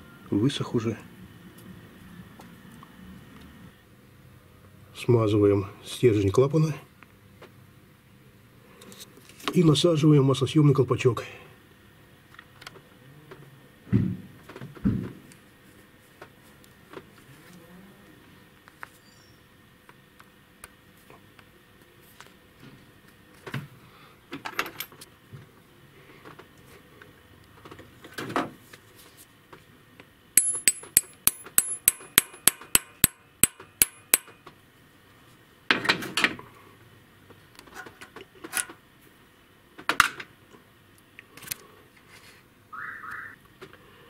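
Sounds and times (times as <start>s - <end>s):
tools clinking and scraping: 30.4s - 32.5s
ringing hammer taps on metal: 30.4s - 34.3s.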